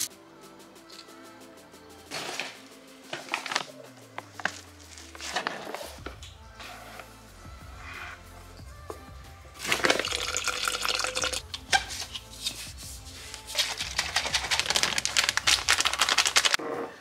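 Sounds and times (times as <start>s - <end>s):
liquid sloshing in shaker bottle: 9.6s - 11.4s.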